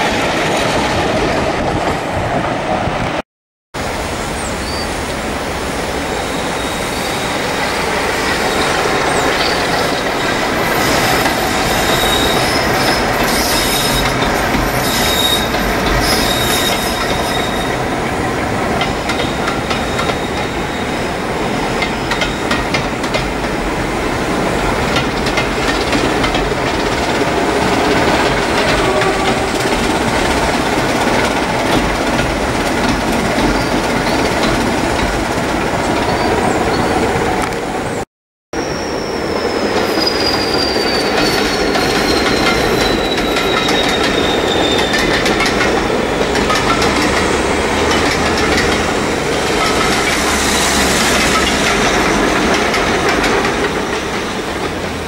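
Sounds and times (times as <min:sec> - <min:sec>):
high wheel squeal: 0:04.3 - 0:05.0, 0:06.1 - 0:17.9, 0:19.1 - 0:21.2, 0:38.6 - 0:54.4
train wheels clattering on rails: 0:06.8 - 0:37.7, 0:39.4 - 0:55.0.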